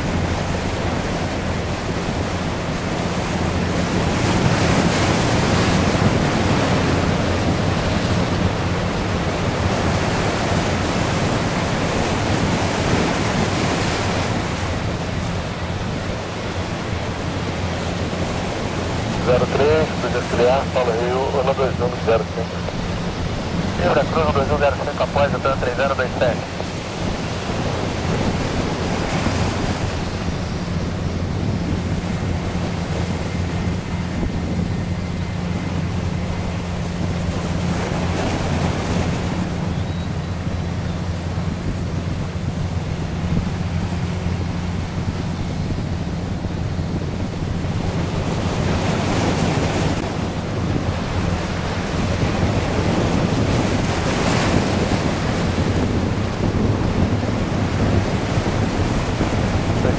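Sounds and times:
jet airliner roar: 0.0 - 59.9
wind buffeting microphone: 0.0 - 59.9.

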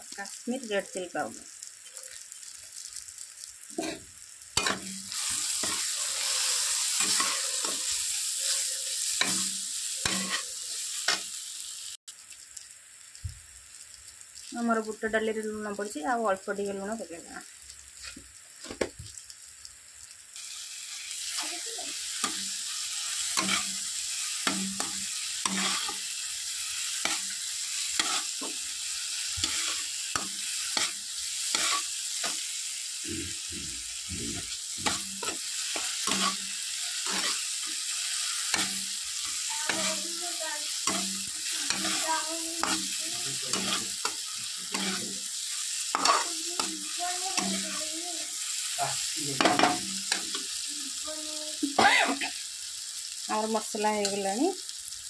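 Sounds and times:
masala sizzling in oil: 0.0 - 55.0
metal spatula scraping pan: 4.6 - 10.6, 23.3 - 23.8, 24.4 - 26.0, 27.9 - 28.5, 30.6 - 32.4, 37.0 - 37.4, 43.5 - 45.1, 45.9 - 46.3.

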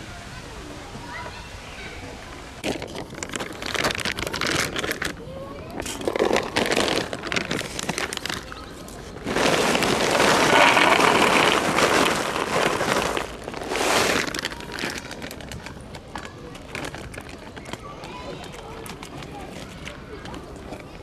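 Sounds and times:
paper bag crinkling: 2.6 - 17.8
kibble pouring into tray: 9.2 - 15.5.

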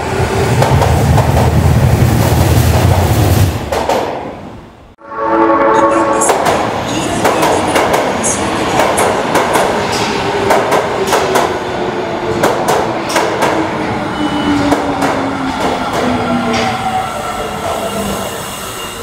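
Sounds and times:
short pitched tone: 5.0 - 6.4
train wheels clattering over rails: 6.3 - 11.7, 12.3 - 13.8, 14.5 - 16.8.

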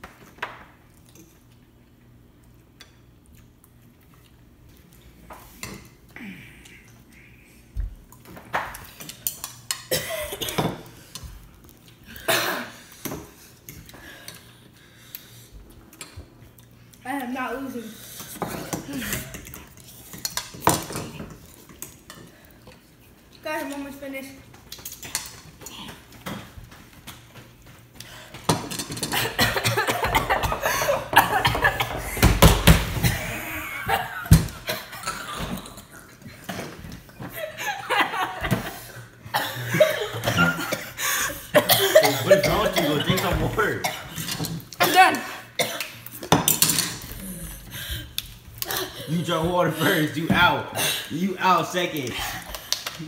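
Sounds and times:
kids coughing and gasping: 9.8 - 10.9, 12.1 - 13.0, 29.0 - 35.8, 38.5 - 46.0
kids laughing: 29.1 - 32.4, 33.0 - 35.7, 37.2 - 43.8.

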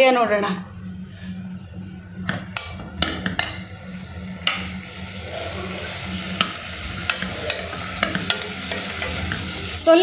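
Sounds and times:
food sizzling: 2.5 - 10.0.

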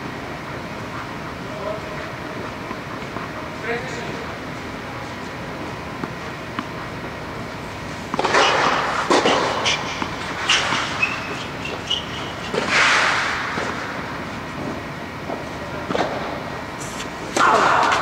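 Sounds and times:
steady background noise: 0.0 - 18.0
footsteps scuffing on clay court: 1.5 - 12.7.

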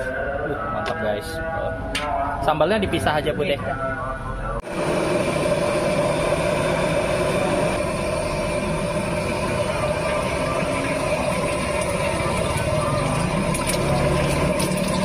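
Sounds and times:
gas stove burner roaring: 4.6 - 15.0
oil sizzling: 4.7 - 15.0.

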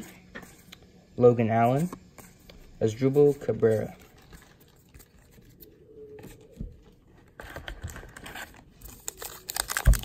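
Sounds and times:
wrapper crinkling: 7.8 - 10.0.

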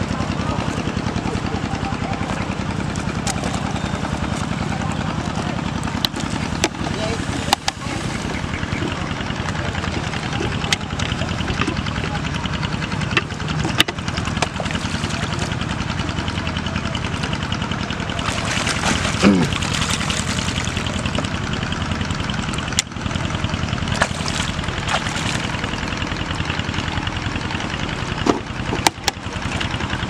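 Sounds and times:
small engine running: 0.0 - 30.0
water pouring and splashing: 18.2 - 21.0, 23.9 - 25.7.

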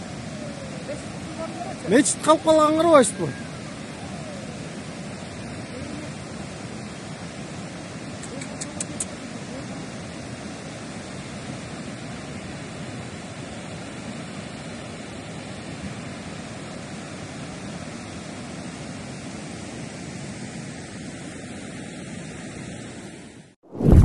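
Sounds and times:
rushing mudflow torrent: 0.0 - 21.3.

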